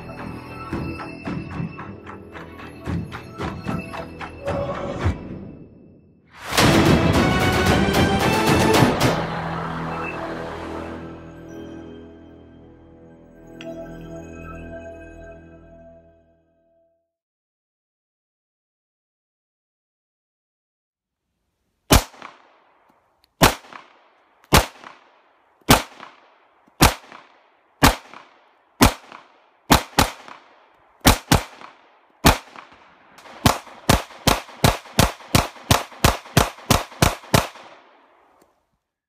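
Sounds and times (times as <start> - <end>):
pistol shots with echo: 21.9 - 22.8, 23.4 - 38.2.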